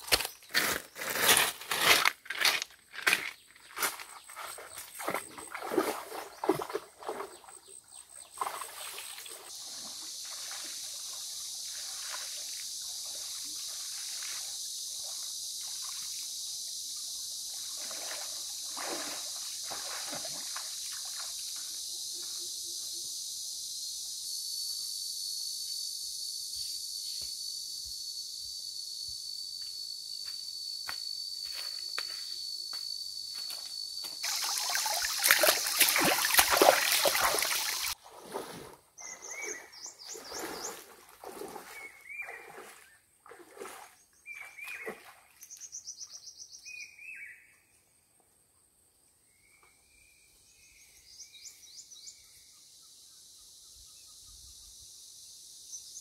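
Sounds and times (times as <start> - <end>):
insects buzzing: 0.0 - 38.0, 50.1 - 56.0
thin insect whine: 8.8 - 38.0, 49.2 - 56.0.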